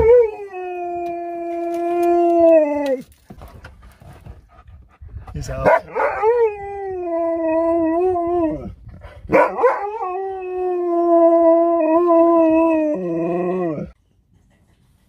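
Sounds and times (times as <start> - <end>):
dog howling: 0.0 - 3.0, 5.9 - 8.7, 9.3 - 14.0.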